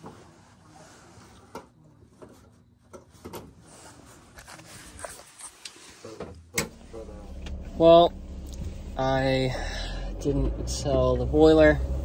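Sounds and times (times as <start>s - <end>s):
faint rustling: 0.0s - 8.9s.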